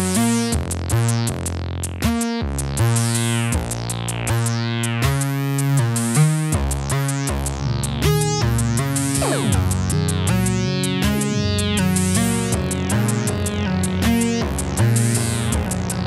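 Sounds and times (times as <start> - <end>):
synth bass line: 6.0 - 16.0
synth chord stabs: 9.0 - 10.7.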